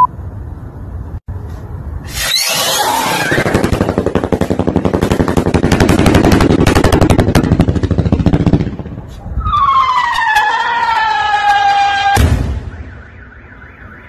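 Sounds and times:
firework rapid cracks: 0:02.1 - 0:08.7.

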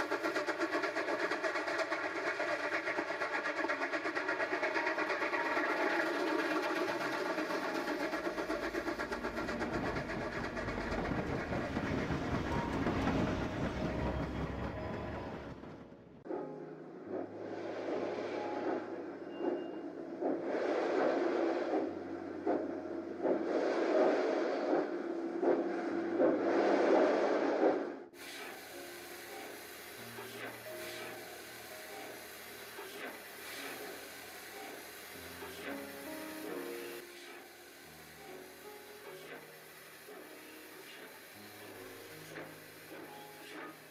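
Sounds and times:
steam locomotive exhaust chuffs: 0:00.0 - 0:16.0, 0:17.1 - 0:43.9
wheels clacking over rail joints: 0:00.0 - 0:16.2
train rumbling past: 0:00.0 - 0:43.9
steady hiss of steam: 0:28.2 - 0:43.9.

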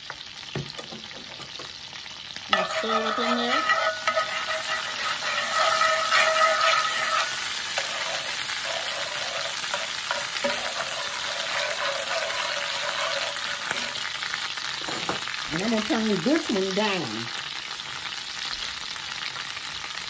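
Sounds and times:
butter and garlic sizzling: 0:00.0 - 0:20.0
tongs stirring in pans: 0:02.4 - 0:15.4.

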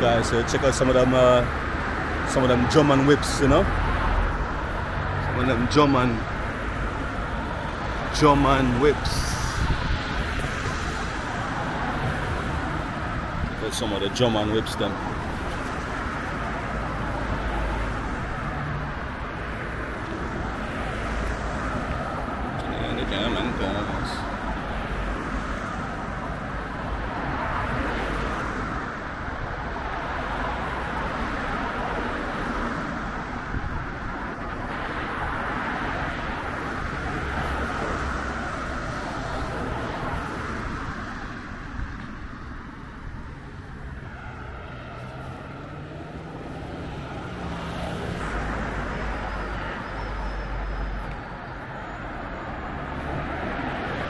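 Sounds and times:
cars driving past: 0:00.0 - 0:54.0.

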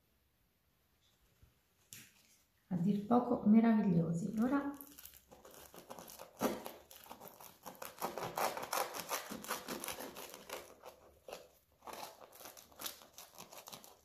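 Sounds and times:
knife crunching fried dough: 0:04.4 - 0:14.0.

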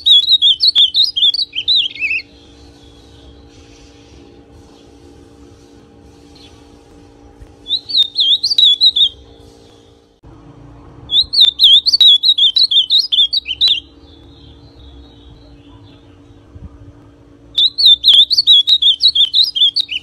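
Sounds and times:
bird singing warbled phrases: 0:00.0 - 0:03.5, 0:07.6 - 0:09.3, 0:11.1 - 0:16.8, 0:17.5 - 0:20.0.

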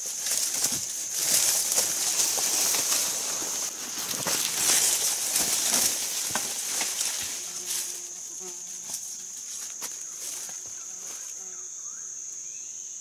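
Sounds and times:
footsteps in dry leaves: 0:00.0 - 0:11.4
high-pitched insect drone: 0:04.5 - 0:13.0.

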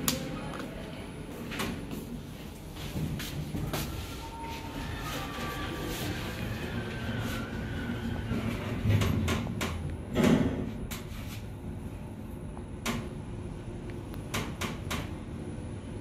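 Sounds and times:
elevator hum: 0:00.0 - 0:16.0
sharp clicks and knocks: 0:14.1 - 0:15.1.

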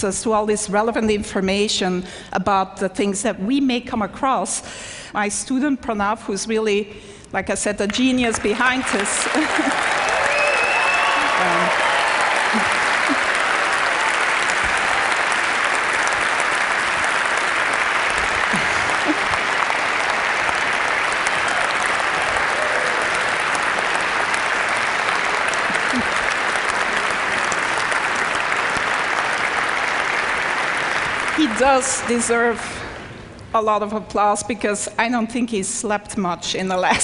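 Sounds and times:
audience applauding: 0:08.3 - 0:32.2.

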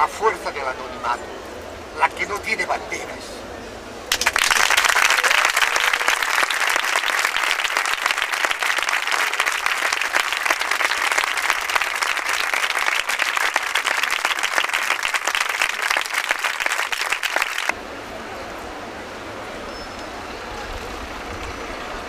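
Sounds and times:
crowd applauding: 0:04.1 - 0:17.7.

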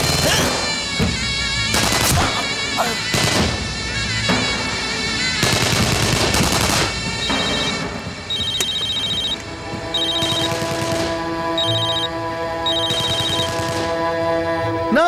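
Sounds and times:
background music: 0:00.0 - 0:15.0
automatic gunfire: 0:05.4 - 0:07.8, 0:12.9 - 0:13.9
phone beeping ringtone: 0:07.2 - 0:10.6, 0:11.6 - 0:13.6.

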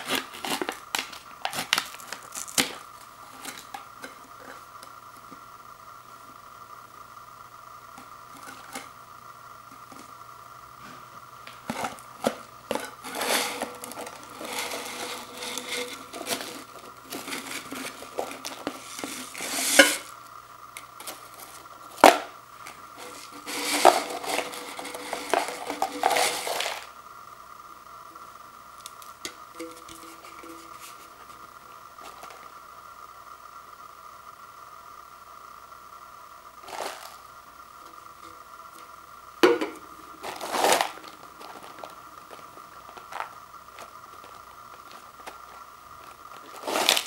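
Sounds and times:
crisps sliding out of can: 0:00.0 - 0:04.6, 0:10.8 - 0:20.2, 0:21.0 - 0:27.0, 0:32.0 - 0:32.5, 0:36.6 - 0:37.2, 0:39.8 - 0:47.0
faint steady hum: 0:00.0 - 0:47.0.

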